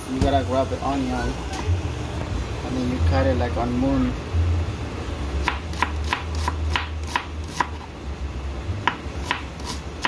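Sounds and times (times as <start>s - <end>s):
knife slicing onion: 5.4s - 7.9s, 8.8s - 10.0s.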